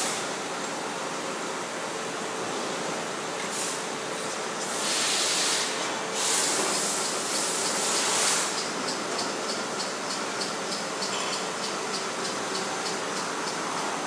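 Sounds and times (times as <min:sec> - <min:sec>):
compressed air hissing: 0:04.6 - 0:08.6.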